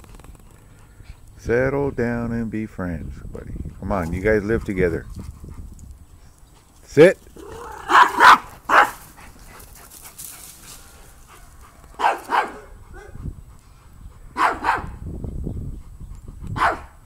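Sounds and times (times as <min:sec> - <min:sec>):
dog barking: 0:07.6 - 0:09.0, 0:11.4 - 0:13.2, 0:14.4 - 0:15.0, 0:16.6 - 0:17.0.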